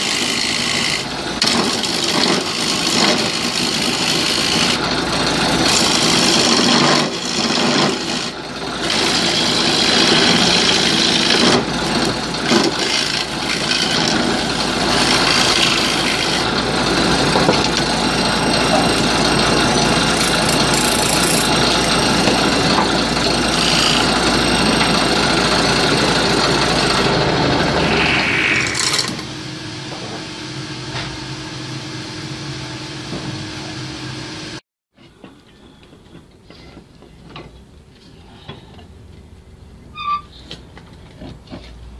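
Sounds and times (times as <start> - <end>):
gouge scraping wood on lathe: 0.0 - 29.2
lathe motor hum: 0.0 - 29.5.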